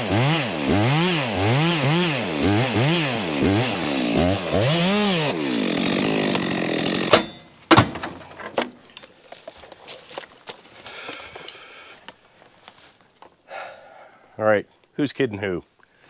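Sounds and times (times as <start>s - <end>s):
chainsaw revving: 0.0s - 7.3s
chainsaw cutting through log: 0.0s - 7.6s
footsteps on leaves: 9.0s - 11.5s.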